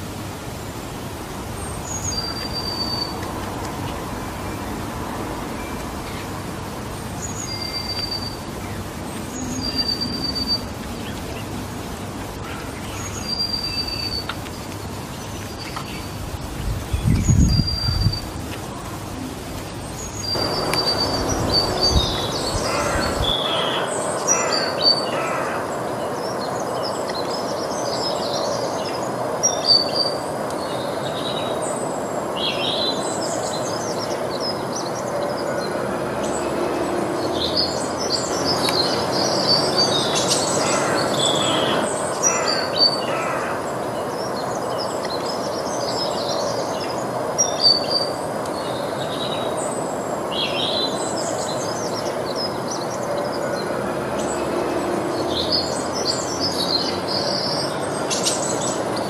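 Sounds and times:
steady rushing noise: 0.0s - 59.0s
small birds chirping: 5.4s - 31.8s.

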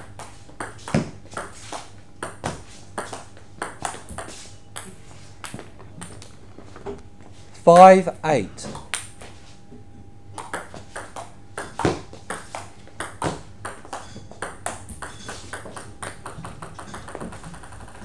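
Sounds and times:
ping pong ball clicking off paddles: 0.0s - 6.3s, 10.3s - 18.0s
ping pong ball bouncing to rest: 2.2s - 6.2s, 10.4s - 18.0s.

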